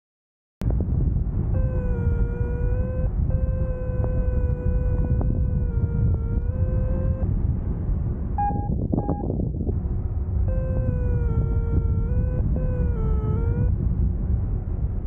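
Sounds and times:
wind rushing over microphone: 0.6s - 15.0s
variometer steady tone: 1.2s - 14.1s
short high beeps: 8.4s - 9.3s.

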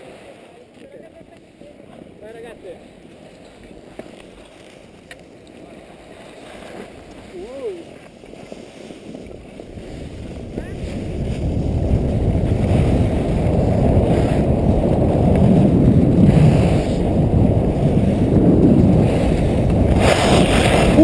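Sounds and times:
skis scraping over snow: 0.0s - 21.0s
wind buffeting microphone: 5.6s - 21.0s.

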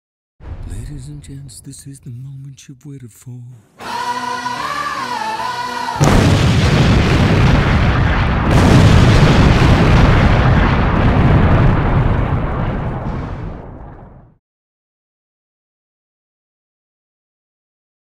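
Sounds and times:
explosive target booming: 6.0s - 14.4s.

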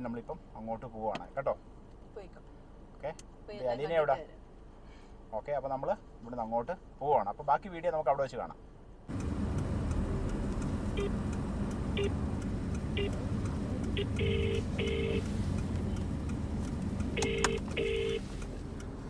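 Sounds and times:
car cabin rumble: 9.1s - 19.0s
phone ringback tone: 14.0s - 15.2s, 17.2s - 18.2s
short phone beeps: 14.0s - 15.2s, 17.2s - 18.2s.

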